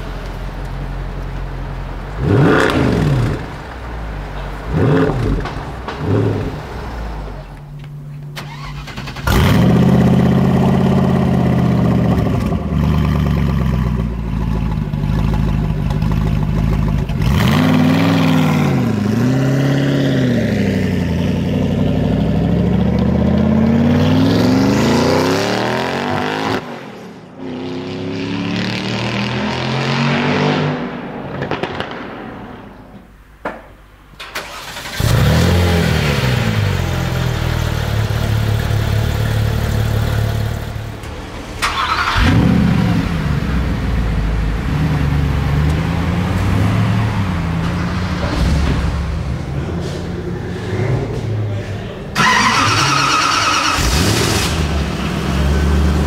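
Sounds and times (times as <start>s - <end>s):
car engine revving: 1.6s - 31.9s, 34.4s - 56.0s
car engine starting and revving: 1.6s - 31.9s, 34.2s - 56.0s
quiet engine running: 7.6s - 17.4s.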